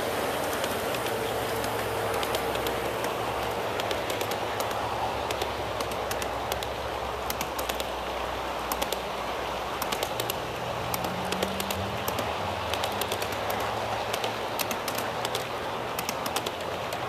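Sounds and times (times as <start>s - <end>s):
model train wheels rumbling: 0.0s - 17.0s
wheels clicking over rail joints: 0.0s - 17.0s.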